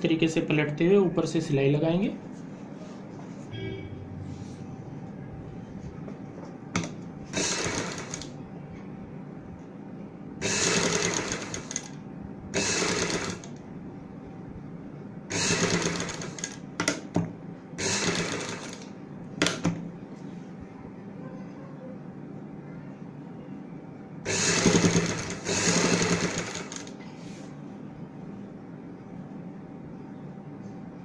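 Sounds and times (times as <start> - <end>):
sewing machine stitching: 6.8 - 8.3, 10.4 - 12.0, 12.6 - 13.5, 15.3 - 17.0, 17.8 - 19.7, 24.3 - 26.9.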